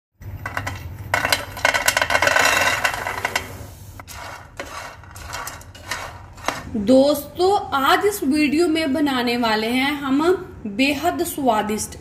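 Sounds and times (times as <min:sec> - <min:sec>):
chickpeas rattling in frying pan: 0:00.5 - 0:03.4, 0:04.0 - 0:06.8.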